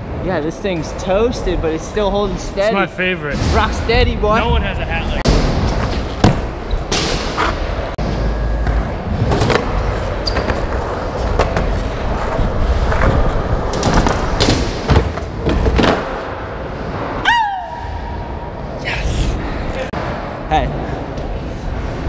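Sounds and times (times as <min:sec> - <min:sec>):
skateboard wheels rolling on concrete: 0:07.3 - 0:18.8.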